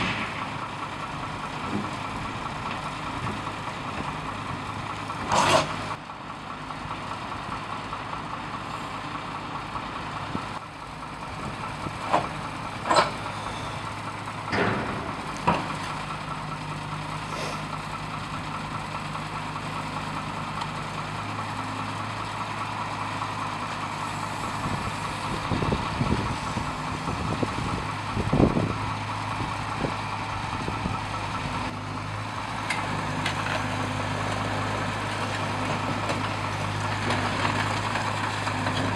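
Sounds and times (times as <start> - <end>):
diesel engine idling: 0.0 - 38.9
metallic clanks and knocks: 12.1 - 13.2, 14.4 - 16.0.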